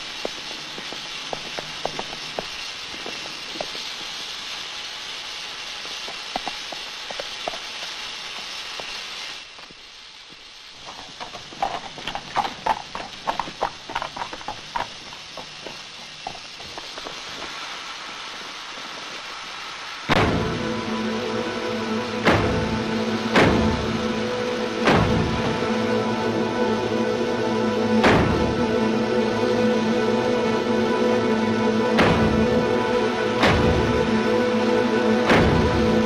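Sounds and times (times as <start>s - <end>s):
clopping steps: 0.0s - 4.2s, 5.9s - 8.9s, 9.6s - 19.2s
steady hiss: 0.0s - 36.0s
music: 20.1s - 36.0s
scattered knocks: 23.4s - 23.8s.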